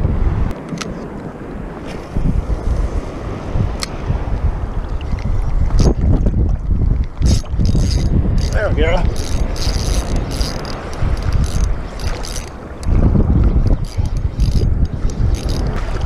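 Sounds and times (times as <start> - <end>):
wind rumble on microphone: 0.0 - 16.0
fishing reel whirring: 7.0 - 16.0.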